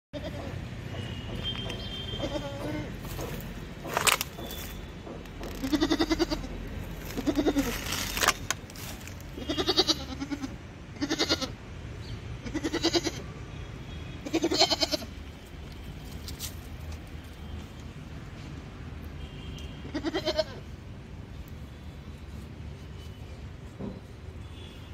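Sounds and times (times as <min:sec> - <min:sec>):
goat bleating: 0:00.2 - 0:00.6, 0:02.2 - 0:03.0, 0:05.6 - 0:07.9, 0:09.4 - 0:11.6, 0:12.4 - 0:13.2, 0:14.2 - 0:15.1, 0:19.9 - 0:20.7.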